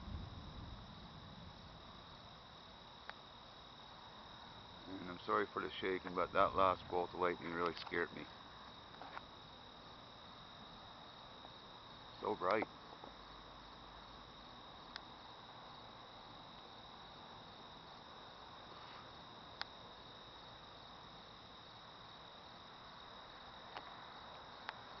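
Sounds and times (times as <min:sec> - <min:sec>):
crickets trilling: 0:00.0 - 0:25.0
low hiss: 0:00.0 - 0:25.0
faint clicks: 0:12.4 - 0:12.7.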